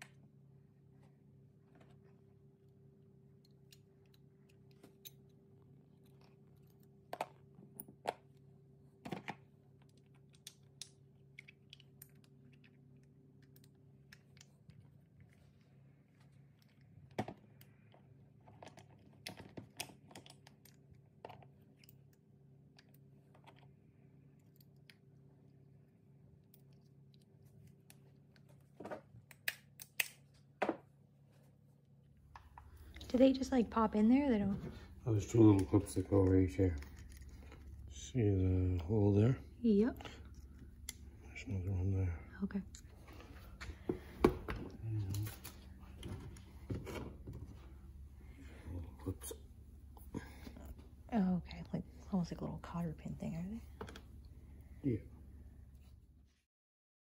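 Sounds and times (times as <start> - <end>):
steady low hum: 30.2 - 56.3.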